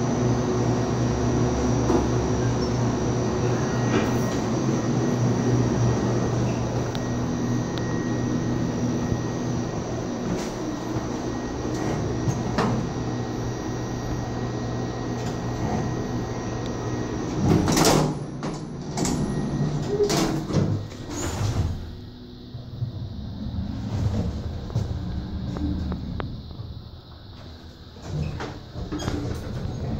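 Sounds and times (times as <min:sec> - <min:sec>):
elevator car humming: 0:00.0 - 0:29.9
elevator doors knocking and clunking: 0:17.2 - 0:22.0, 0:28.0 - 0:29.9.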